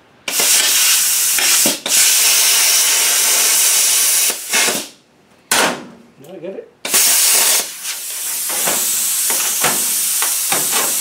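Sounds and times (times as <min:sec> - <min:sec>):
plasma cutter hissing: 0:00.3 - 0:05.0, 0:06.9 - 0:11.0.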